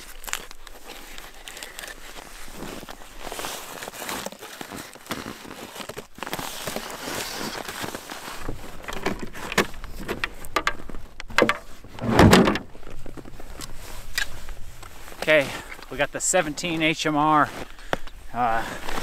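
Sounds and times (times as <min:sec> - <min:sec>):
soft rustling: 0:00.0 - 0:19.0
case clicks and scrapes: 0:04.0 - 0:14.3
dull thump: 0:10.6 - 0:12.7.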